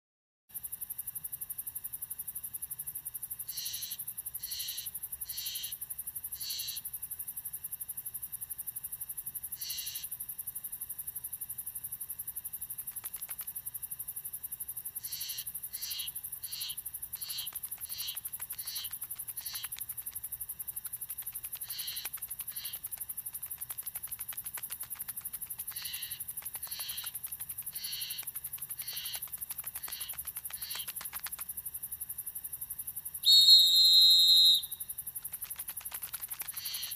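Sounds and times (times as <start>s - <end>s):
short insect chirps: 0.6s - 36.9s
high-pitched insect buzz: 3.4s - 6.9s, 9.5s - 10.2s, 14.8s - 31.7s, 33.2s - 36.9s.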